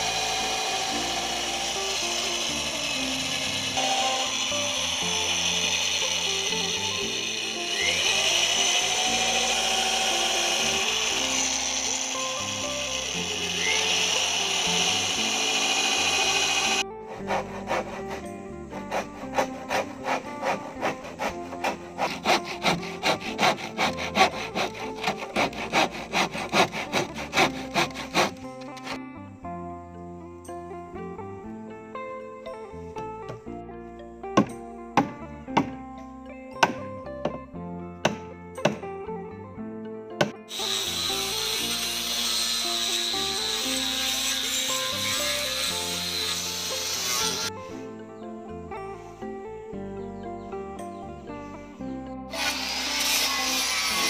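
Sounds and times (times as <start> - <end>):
electric drill boring wood: 0.0 - 29.0, 40.5 - 47.6, 52.3 - 54.0
hand saw cutting wood: 0.0 - 29.0, 34.4 - 35.8, 36.6 - 36.8, 38.0 - 38.8, 40.5 - 47.6, 52.3 - 54.0.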